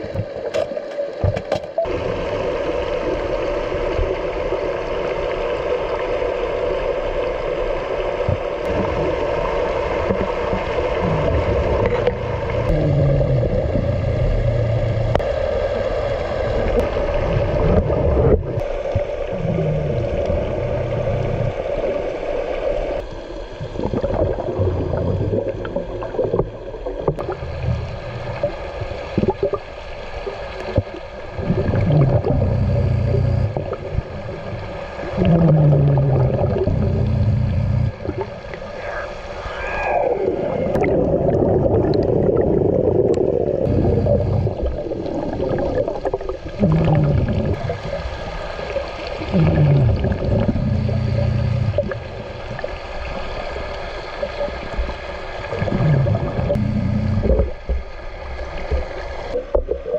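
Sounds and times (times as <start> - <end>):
steady hum: 8.6 - 29.6, 31.3 - 40.9, 43.6 - 45.0, 46.5 - 57.8
bubbling exhalations: 10.5 - 15.2, 17.3 - 21.6, 23.6 - 29.6, 31.4 - 34.0, 35.0 - 52.7, 55.5 - 57.6
low groans falling in pitch: 10.9 - 15.2, 19.2 - 21.6, 31.5 - 33.7, 35.2 - 38.4, 43.6 - 44.6, 46.7 - 52.7
diver breathing through regulator: 19.3 - 21.6, 35.1 - 38.0, 43.6 - 44.6, 46.7 - 52.6, 55.6 - 57.4.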